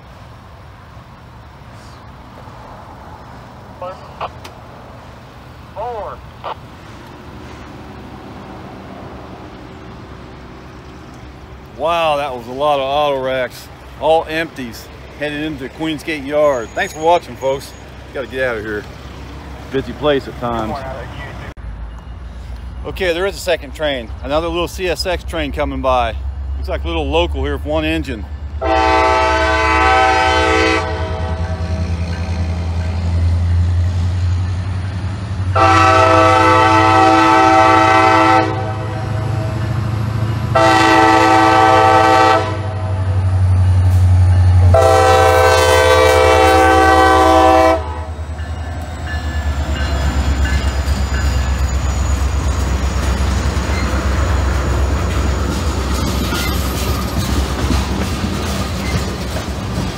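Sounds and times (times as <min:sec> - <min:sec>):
diesel engine rumble: 0:00.0 - 0:59.9
locomotive air horn blasts: 0:28.6 - 0:31.7, 0:35.5 - 0:39.6, 0:40.5 - 0:43.0, 0:44.6 - 0:48.2
train wheels clacking on rails: 0:48.2 - 0:59.9.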